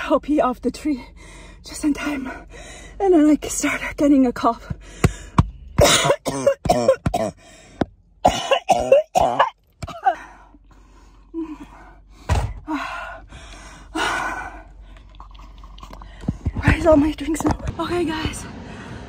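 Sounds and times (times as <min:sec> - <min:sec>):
woman coughing: 0:05.8 - 0:07.4, 0:08.2 - 0:10.2.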